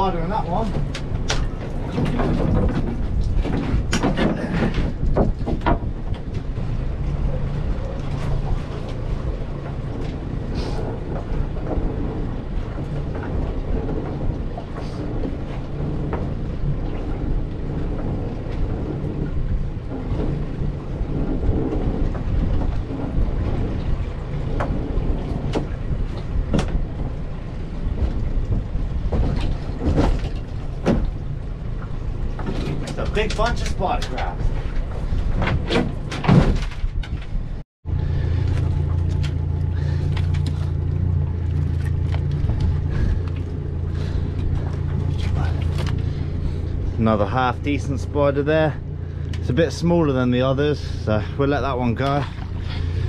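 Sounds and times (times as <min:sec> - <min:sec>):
outboard motor idling: 0:37.8 - 0:53.0.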